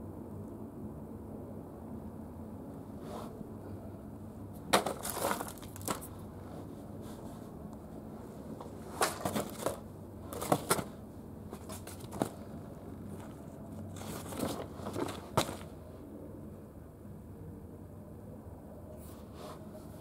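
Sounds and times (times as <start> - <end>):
paper rustling and crinkling: 4.7 - 6.2, 8.6 - 15.7.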